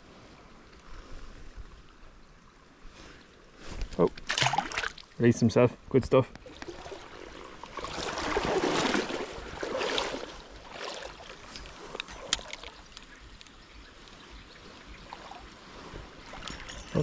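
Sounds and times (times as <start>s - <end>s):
river water flowing: 0.0s - 5.3s, 6.3s - 17.0s.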